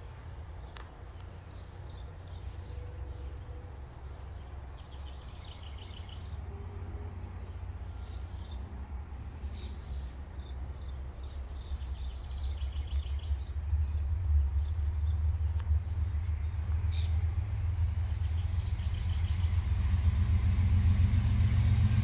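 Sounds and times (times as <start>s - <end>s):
birds chirping: 0.6s - 6.6s, 9.4s - 17.3s, 18.0s - 19.8s
low rumble: 13.2s - 22.0s.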